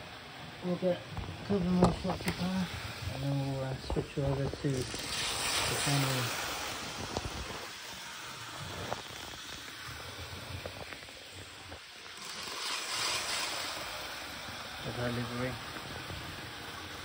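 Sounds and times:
model train running on track: 9.6s - 17.0s.

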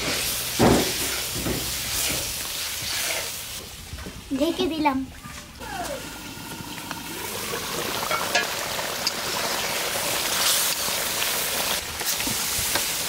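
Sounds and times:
curry bubbling in covered pot: 6.2s - 11.7s.

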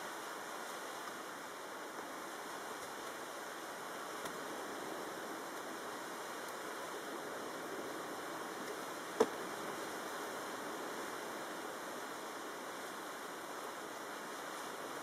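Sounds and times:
choppy wind-driven water: 0.0s - 15.0s.

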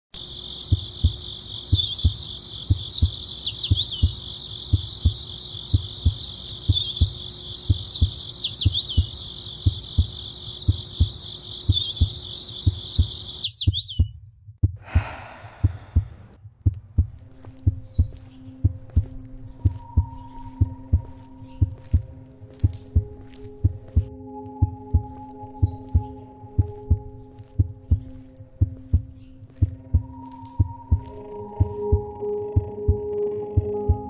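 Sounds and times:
high whining tones with chirps: 0.2s - 14.4s, 29.9s - 34.0s
low repeating thumps: 0.6s - 34.0s.

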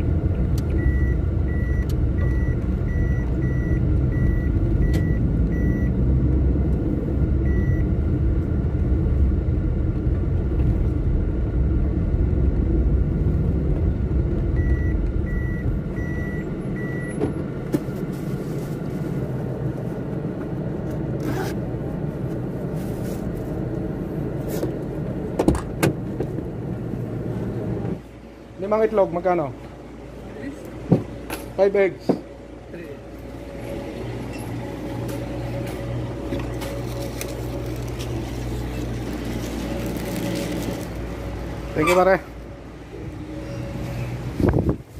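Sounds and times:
high reversing beeps: 0.8s - 6.0s, 7.4s - 7.9s, 14.6s - 17.2s
vehicle engine running: 29.8s - 44.9s.

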